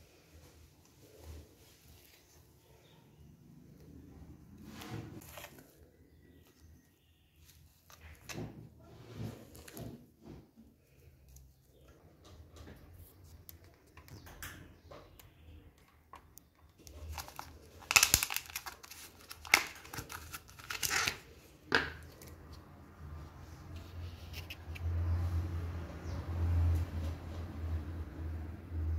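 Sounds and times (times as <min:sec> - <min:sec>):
plastic tubs being handled: 0:04.6 - 0:06.8, 0:14.8 - 0:25.0.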